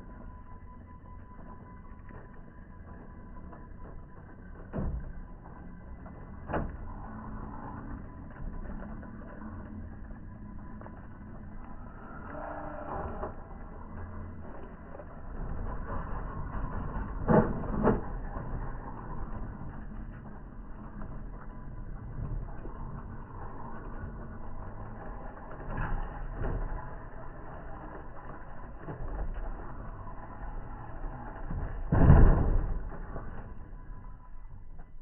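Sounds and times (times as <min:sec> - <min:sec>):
rc car drivetrain on rocks: 0:05.3 - 0:34.2
tyres rolling on gravel: 0:13.3 - 0:34.2.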